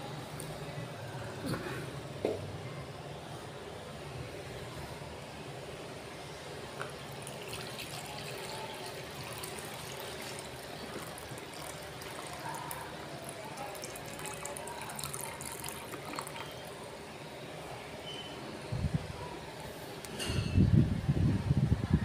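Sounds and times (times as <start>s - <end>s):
liquid trickling and splashing: 7.1s - 16.8s.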